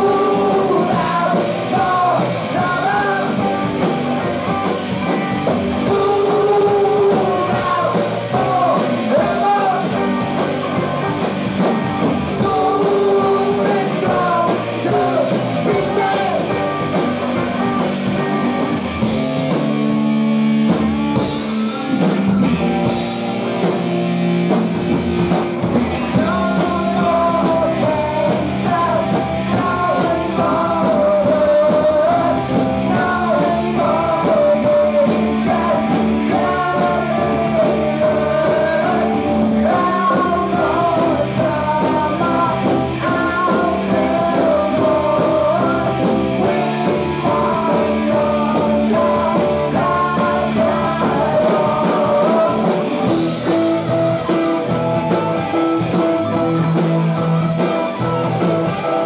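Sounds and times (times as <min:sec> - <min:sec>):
boys singing: 0:00.0 - 0:03.5, 0:05.8 - 0:11.3, 0:12.3 - 0:16.9, 0:26.2 - 0:53.3
rock band playing: 0:00.0 - 0:59.0.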